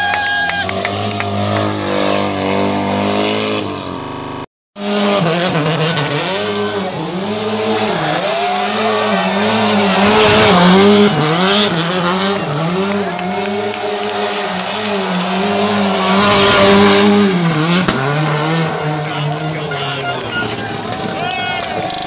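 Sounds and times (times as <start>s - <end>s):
rally car engines revving: 0.0s - 22.0s
tyres squealing: 18.2s - 22.0s.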